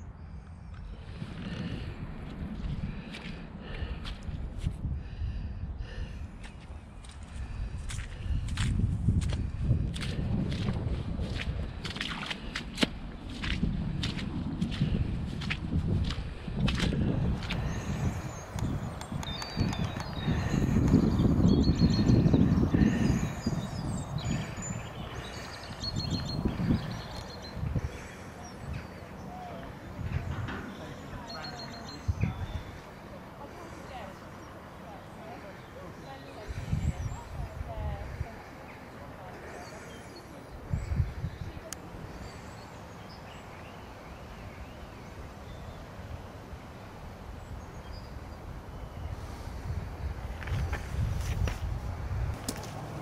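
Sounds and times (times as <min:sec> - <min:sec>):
wind buffeting microphone: 0:00.0 - 0:53.0
small birds chirping: 0:13.4 - 0:53.0.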